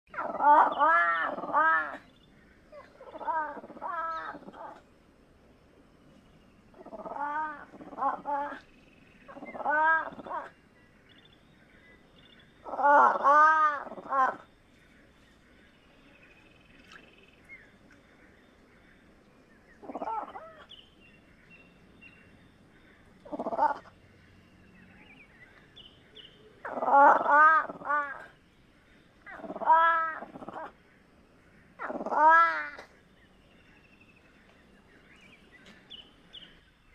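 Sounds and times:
cat calling: 2.8 - 4.8, 9.3 - 10.5, 29.3 - 30.7, 31.8 - 32.9.

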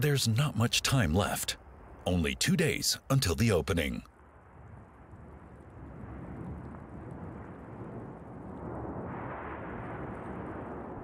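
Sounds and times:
low rumble: 1.4 - 11.0.

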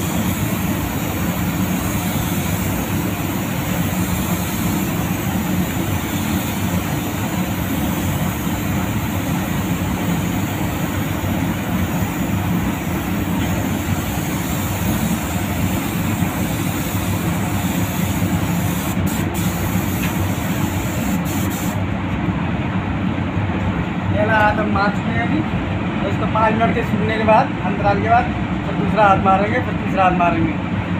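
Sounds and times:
spray gun air hissing: 0.0 - 21.9.

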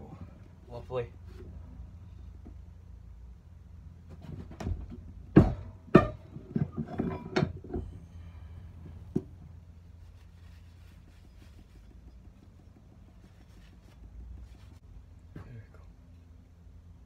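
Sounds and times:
metal clanks from vise: 5.5 - 7.9.

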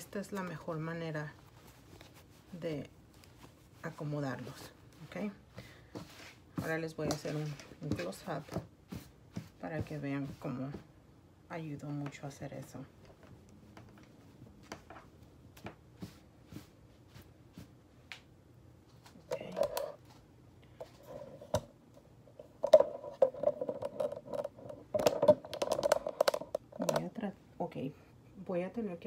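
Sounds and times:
satin fabric rustling: 0.0 - 10.9, 12.9 - 18.2.

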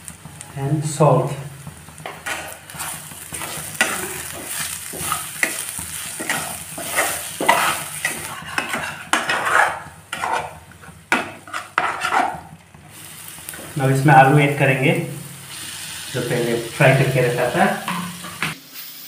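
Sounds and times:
frying sizzle: 0.0 - 19.0
spatula scraping frying pan: 1.7 - 13.8, 16.9 - 18.6.

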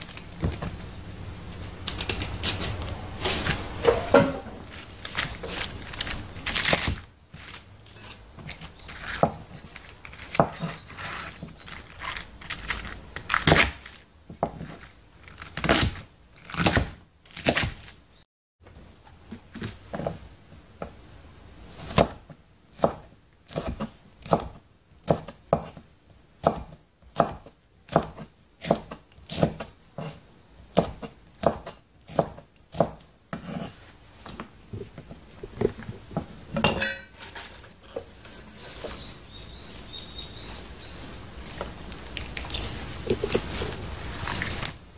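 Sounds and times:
knife chopping on wooden board: 26.4 - 33.7.

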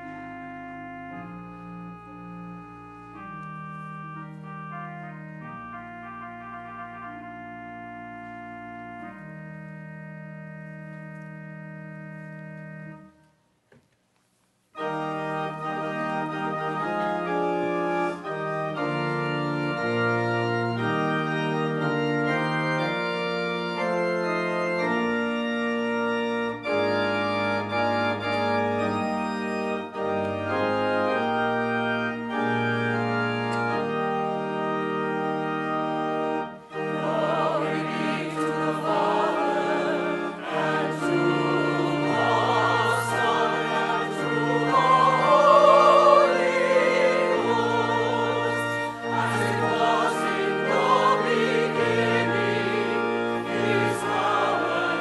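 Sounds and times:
pipe organ chords: 0.0 - 13.6, 14.7 - 55.0
choir singing: 36.7 - 55.0.

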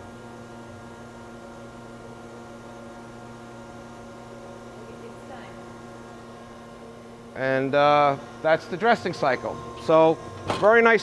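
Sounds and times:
surface grinder humming: 4.7 - 11.0.

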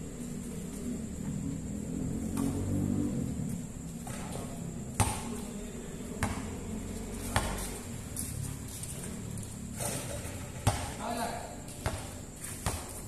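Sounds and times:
basketball bouncing on concrete: 4.9 - 5.4, 6.1 - 6.6, 7.2 - 7.7, 10.6 - 11.0, 11.7 - 13.0.

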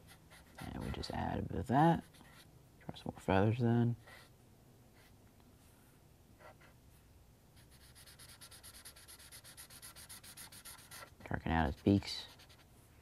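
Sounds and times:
marker scratching on paper: 0.0 - 1.3, 7.6 - 12.7.

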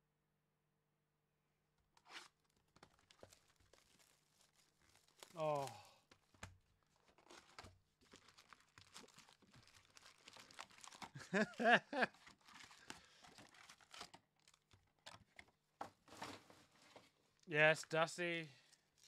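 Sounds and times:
wrappers torn and crinkled: 2.0 - 15.0, 18.6 - 19.0.

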